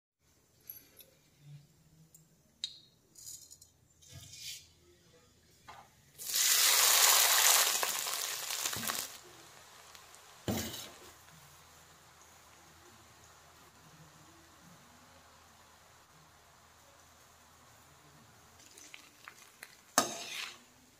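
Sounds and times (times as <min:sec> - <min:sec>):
hot oil sizzling in a pan: 0:06.2 - 0:20.9.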